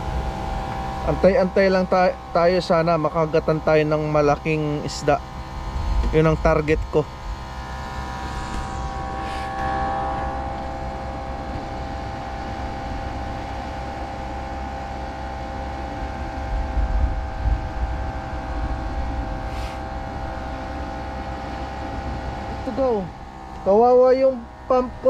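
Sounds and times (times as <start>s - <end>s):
small pump motor humming: 0.0s - 25.0s
wind: 0.0s - 25.0s
sea: 9.1s - 25.0s.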